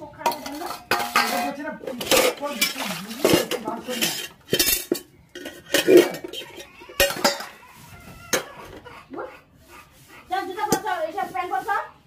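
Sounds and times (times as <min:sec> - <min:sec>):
metal pots and lids clanking: 0:00.0 - 0:07.6, 0:08.3 - 0:08.8.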